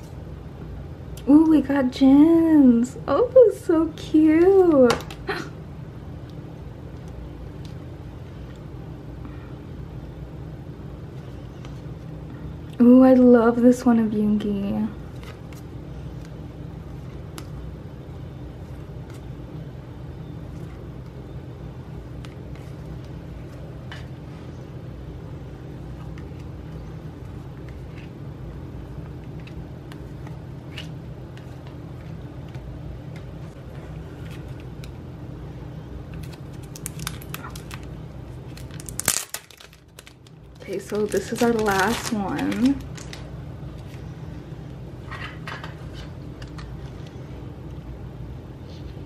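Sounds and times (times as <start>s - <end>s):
plastic wrapper crinkling: 36.1s - 44.0s.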